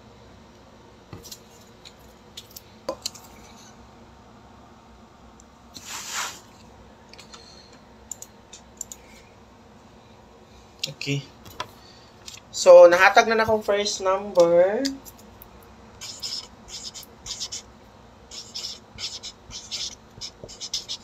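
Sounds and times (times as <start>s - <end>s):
short rustling hiss: 5.7s - 6.6s.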